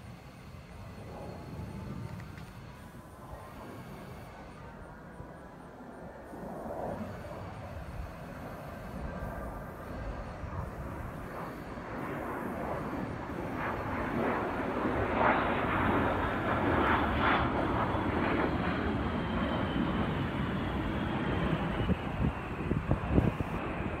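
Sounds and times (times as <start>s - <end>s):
jet passing overhead: 0.0s - 24.0s.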